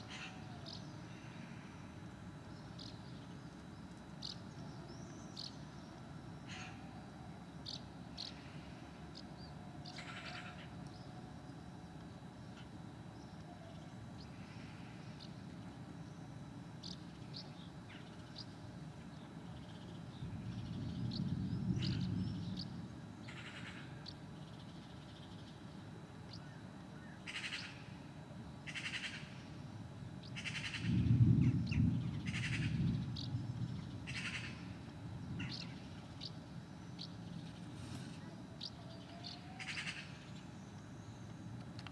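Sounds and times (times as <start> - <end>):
harsh bird calls: 0.0 - 1.6, 7.6 - 11.1, 26.3 - 27.9, 28.6 - 29.4, 30.3 - 36.4, 37.0 - 40.6
birds chirping: 2.4 - 6.8, 7.6 - 27.9, 28.6 - 41.4
distant thunder rumble: 20.2 - 23.7, 30.4 - 35.9.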